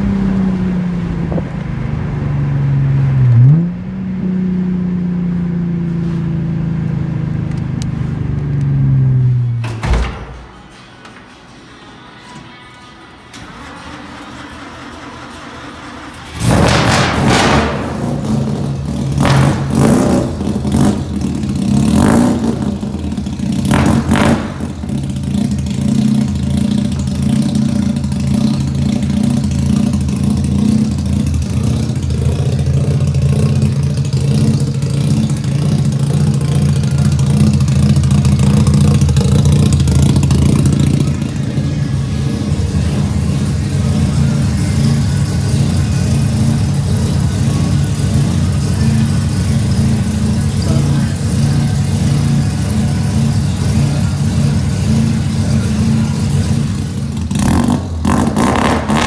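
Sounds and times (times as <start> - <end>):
pickup engine revving and idling: 16.2 - 59.0.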